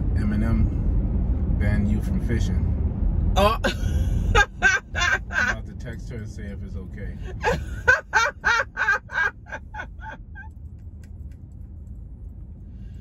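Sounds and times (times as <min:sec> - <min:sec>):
road rumble inside car: 0:00.0 - 0:13.0
person cackling with laughter: 0:03.7 - 0:05.6, 0:07.3 - 0:10.5.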